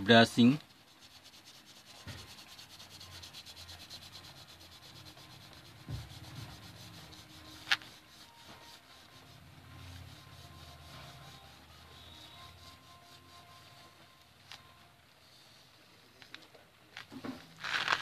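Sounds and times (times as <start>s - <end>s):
crayon scratching on paper: 0.2s - 13.9s
soft knock: 5.8s - 6.3s.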